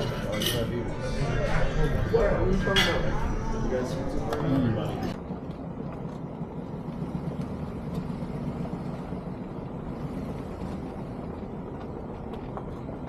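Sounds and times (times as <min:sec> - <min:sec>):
vehicle engine rumble: 0:03.2 - 0:13.0.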